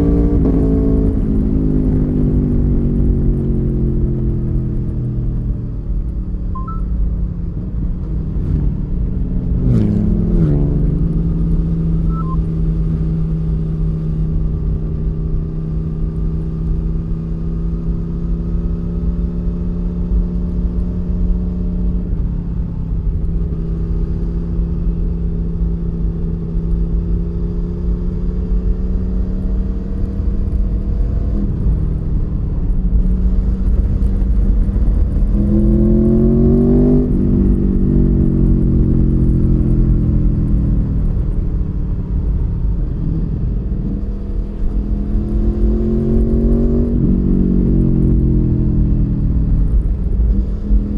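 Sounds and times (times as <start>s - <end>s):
motorcycle engine running: 27.2s - 50.9s.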